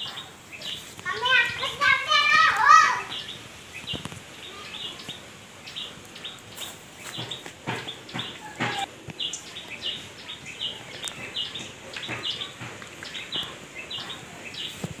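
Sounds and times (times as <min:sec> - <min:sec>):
soft knocks: 0:07.1 - 0:08.9.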